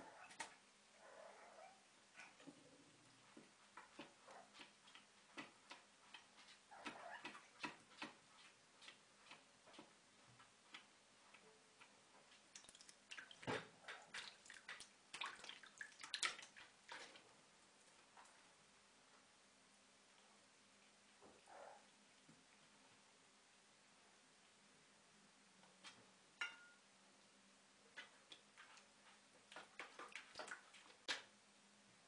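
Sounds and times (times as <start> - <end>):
kitten lapping water: 11.7 - 18.2, 27.9 - 31.3
water splashing: 12.5 - 17.3, 29.5 - 31.3.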